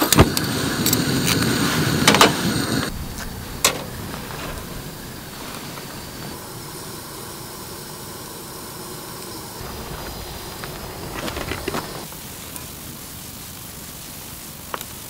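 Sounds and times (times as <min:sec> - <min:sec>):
gas stove burner hissing: 0:00.0 - 0:15.0
sharp clattering knocks: 0:02.1 - 0:05.2.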